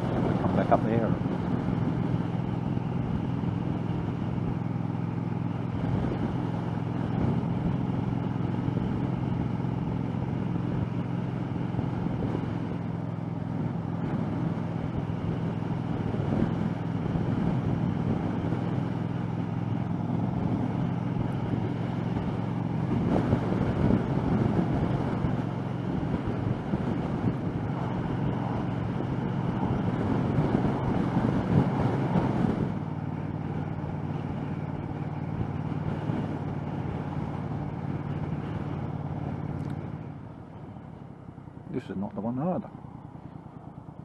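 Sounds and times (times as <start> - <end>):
wind noise: 0.0 - 4.6, 5.5 - 9.8, 13.6 - 40.8
motorcycle engine running: 0.0 - 41.7
road noise: 0.0 - 44.0.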